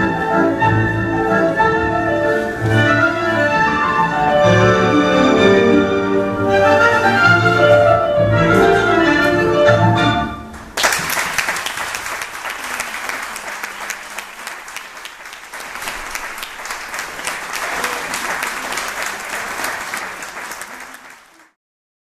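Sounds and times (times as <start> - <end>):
tango music with strings: 0.0 - 10.7
audience applause: 10.8 - 21.6.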